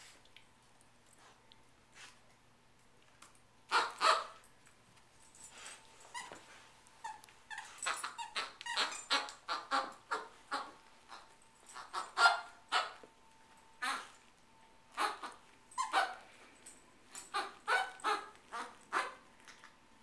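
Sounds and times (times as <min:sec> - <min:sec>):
squeaky toy squeaking: 0:07.0 - 0:11.2, 0:11.8 - 0:13.0, 0:15.0 - 0:16.2, 0:17.3 - 0:19.2.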